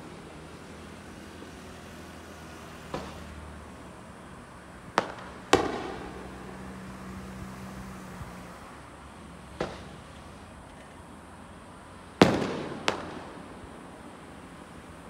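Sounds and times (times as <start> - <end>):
fireworks bursting: 0.0 - 4.2, 4.8 - 8.8, 9.5 - 10.5, 12.2 - 14.8.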